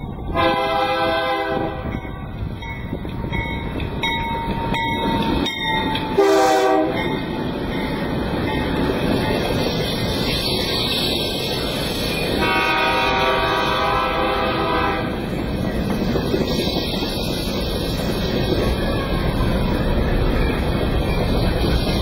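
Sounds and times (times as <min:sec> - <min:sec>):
locomotive engine rumble: 0:00.0 - 0:22.0
train wheels on rails: 0:00.0 - 0:22.0
locomotive air horn blasts: 0:00.3 - 0:01.9, 0:06.2 - 0:07.1, 0:12.4 - 0:15.2.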